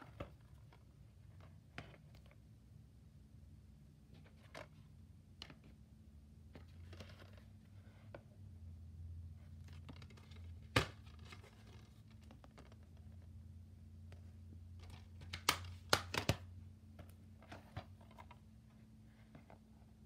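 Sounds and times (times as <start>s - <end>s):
faint low hum: 0.0s - 20.0s
plastic case being handled: 6.6s - 8.3s, 9.4s - 13.3s, 14.1s - 19.8s.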